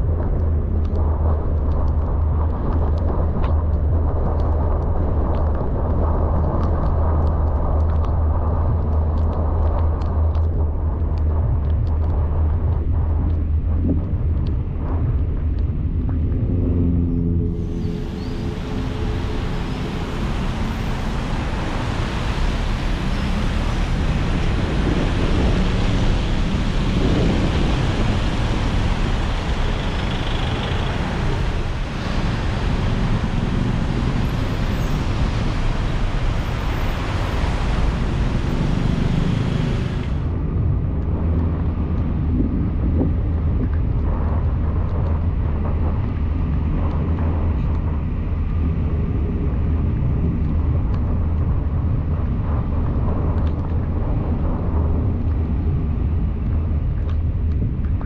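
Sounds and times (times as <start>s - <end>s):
engine and tyres rumbling: 0.0s - 58.0s
hiss of rain and road spray: 17.7s - 40.3s.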